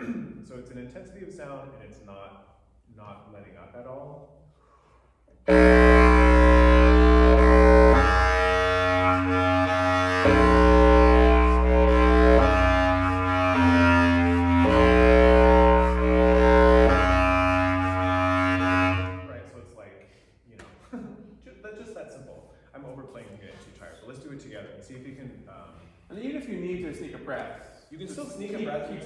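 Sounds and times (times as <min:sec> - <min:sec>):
bass clarinets playing low chords: 0:05.5 - 0:19.6.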